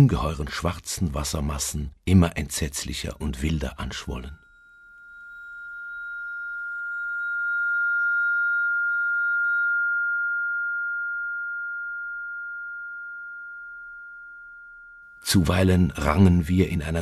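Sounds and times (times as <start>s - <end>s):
high sustained musical tone: 4.4s - 17.0s.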